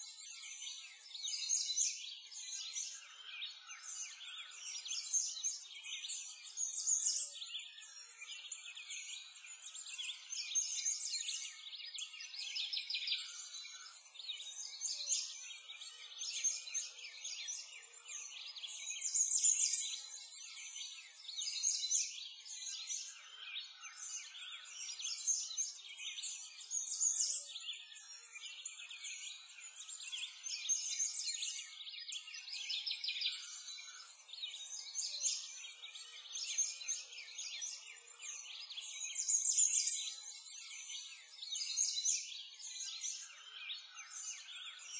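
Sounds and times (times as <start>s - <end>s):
songbirds chirping and trilling: 0.0s - 44.9s.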